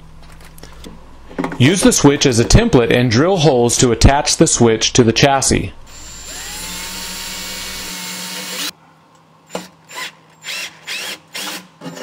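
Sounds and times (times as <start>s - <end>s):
drill whirring: 5.9s - 8.7s, 9.6s - 11.7s.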